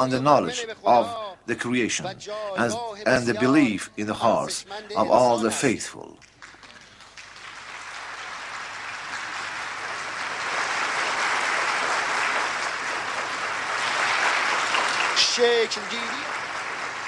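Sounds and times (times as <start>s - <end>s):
large audience applauding: 6.2s - 17.0s.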